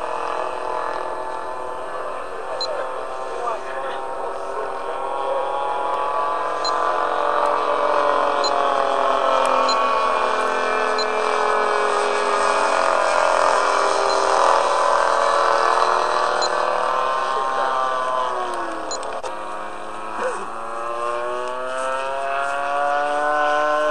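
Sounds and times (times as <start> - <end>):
model plane engine droning: 0.0 - 23.9.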